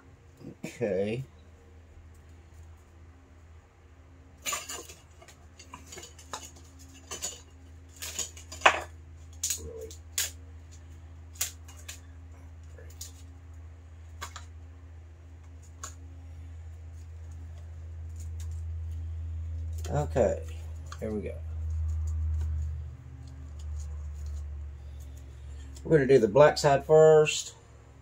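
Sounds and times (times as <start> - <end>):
steady low hum: 0.0 - 28.0
hard objects clinking and knocking: 4.4 - 9.6.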